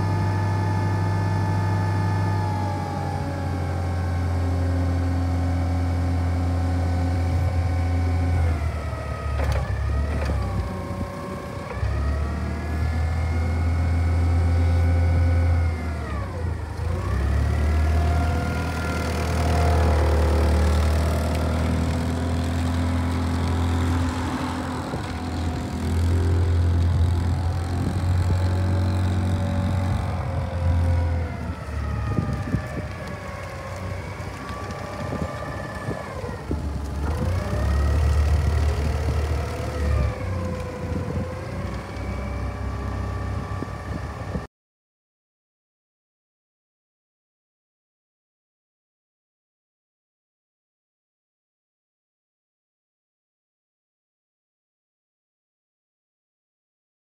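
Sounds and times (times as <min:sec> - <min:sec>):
forklift engine hum: 0:00.0 - 0:44.5.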